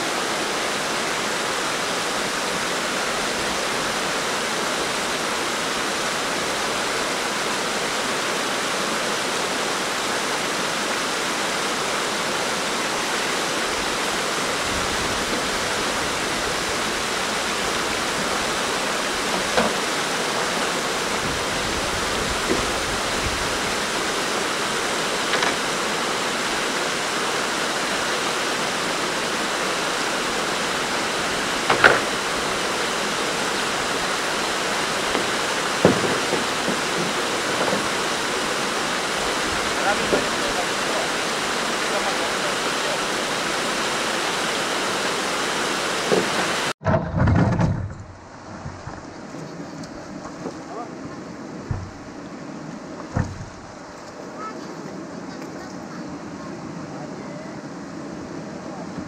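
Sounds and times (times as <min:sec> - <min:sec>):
wind gusts buffeting microphone: 0:13.3 - 0:45.0.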